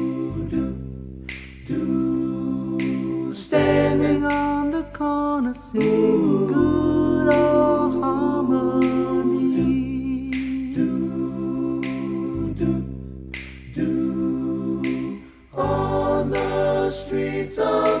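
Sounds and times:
finger snaps: 0.0 - 18.0
vocal group singing harmony: 0.0 - 18.0
low bass voice: 4.2 - 11.2.

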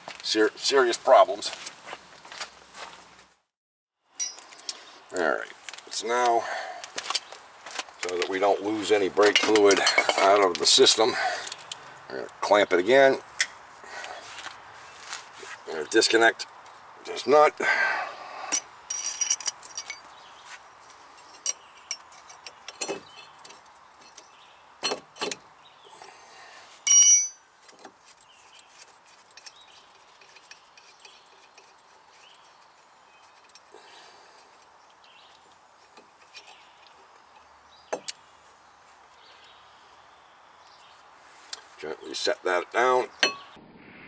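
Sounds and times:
metal tools clinking: 4.2 - 4.7, 9.2 - 10.5, 18.5 - 20.1, 26.8 - 27.4
loud ringing metallic clink: 26.9 - 27.4.

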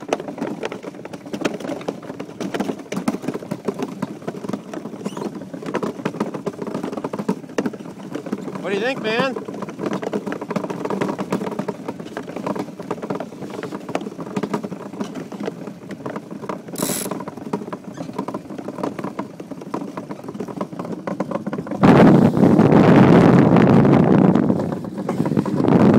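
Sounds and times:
iceboat runners rattling on ice: 0.0 - 25.9
wind buffeting microphone: 21.6 - 25.9.

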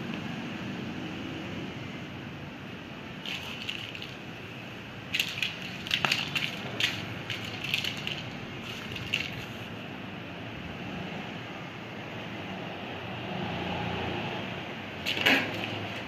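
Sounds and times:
dry crunching and crackling: 3.2 - 4.3, 5.1 - 9.6, 15.0 - 16.0.

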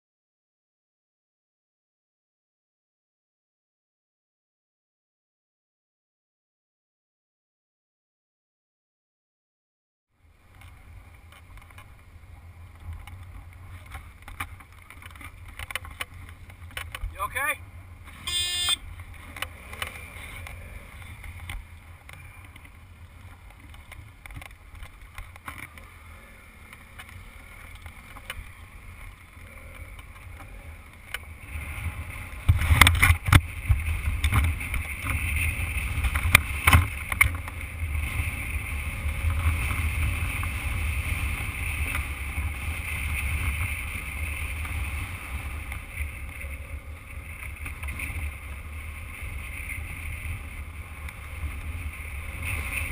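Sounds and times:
motorcycle engine and tyre rumble: 10.1 - 52.9.

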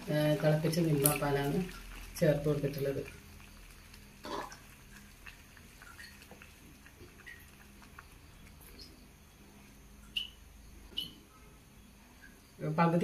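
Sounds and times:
spatula stirring in a pan: 0.0 - 9.8.

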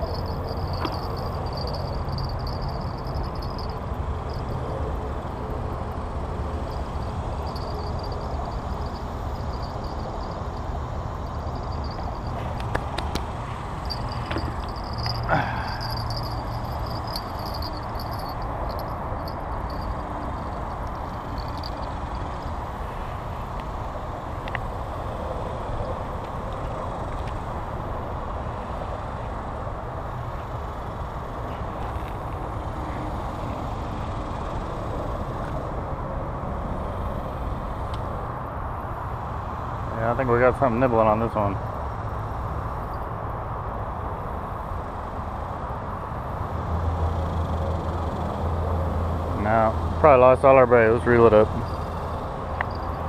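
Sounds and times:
insects chirring: 0.0 - 23.8, 51.5 - 53.0
low outdoor rumble: 0.0 - 24.7
road traffic drone: 0.0 - 53.0.

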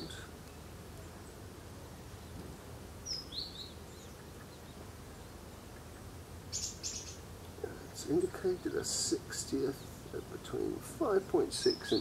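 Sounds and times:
small bird chirping: 3.0 - 8.8.

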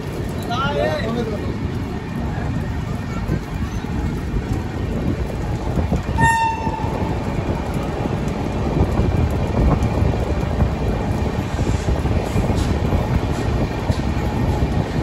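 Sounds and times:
train rumbling and rattling: 0.0 - 15.0
train horn blast: 6.1 - 7.1.

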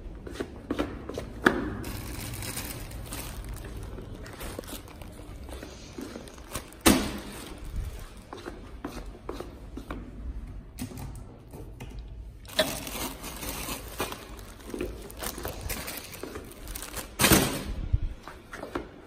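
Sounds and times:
plastic wrapping crinkling: 1.8 - 8.3, 12.4 - 17.6.

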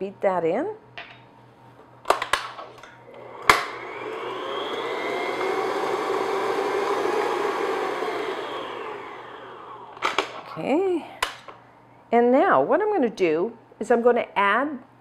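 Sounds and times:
mixer clicks: 3.1 - 10.4
stand mixer motor whirring: 3.1 - 10.4.

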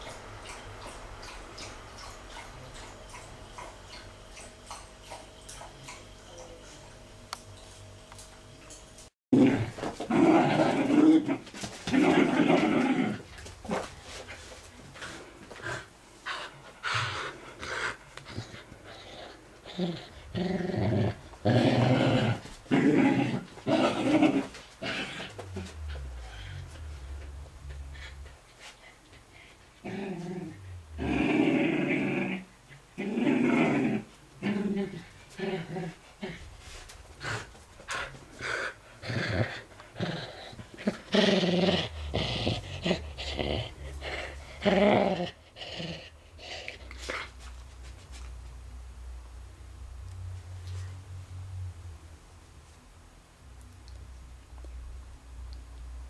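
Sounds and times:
dog play-growling: 9.4 - 47.4.

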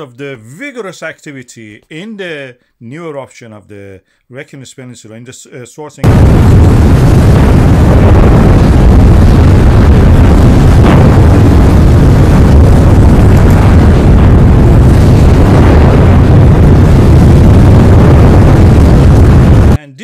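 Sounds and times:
lava fountain low rumble: 6.0 - 19.8.

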